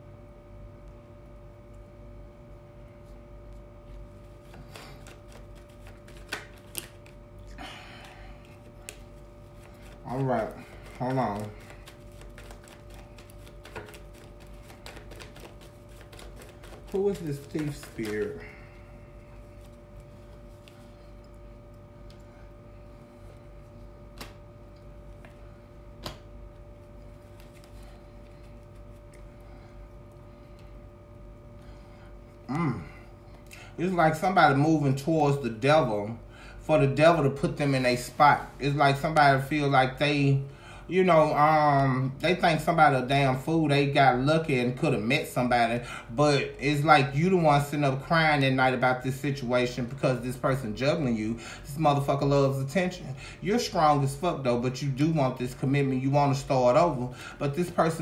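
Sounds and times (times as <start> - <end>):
faint steady hum: 0.0 - 58.0
cards rustling: 4.2 - 18.6, 26.8 - 29.4.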